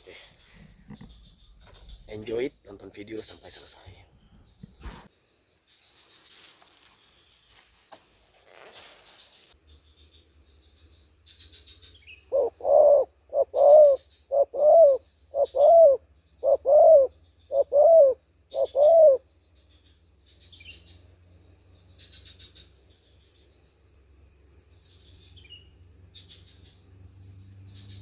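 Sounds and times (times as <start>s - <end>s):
high insect drone: 0.0s - 28.0s
dove cooing: 12.3s - 19.2s.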